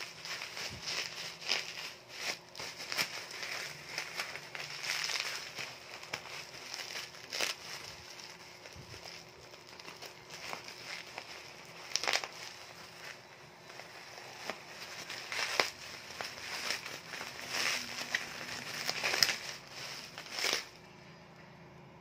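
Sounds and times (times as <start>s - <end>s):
bubble wrap crinkling: 0.0s - 20.9s.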